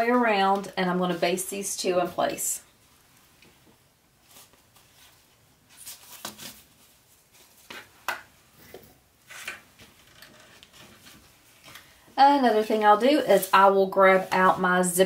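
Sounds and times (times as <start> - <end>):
fabric and vinyl rustling: 0.0 - 15.0.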